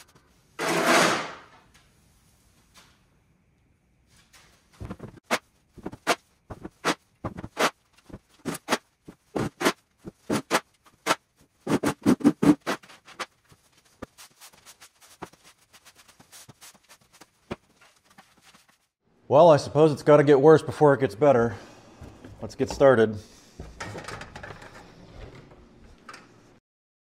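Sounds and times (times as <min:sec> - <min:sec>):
shovel scraping concrete floor: 0:00.6 - 0:01.6, 0:05.3 - 0:13.3
broom sweeping: 0:04.1 - 0:19.0.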